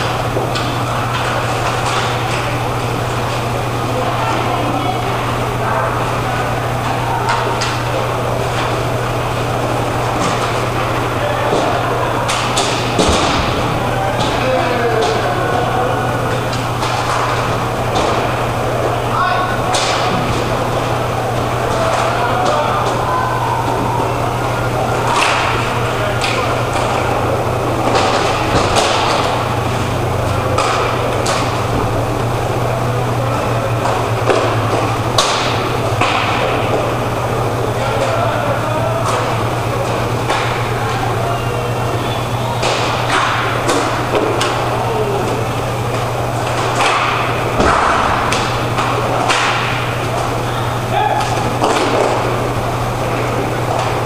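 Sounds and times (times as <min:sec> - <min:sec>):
hockey sticks clacking on puck: 0:00.0 - 0:05.5, 0:06.4 - 0:54.0
inline skate wheels rolling: 0:00.0 - 0:54.0
steady low hum: 0:00.0 - 0:54.0.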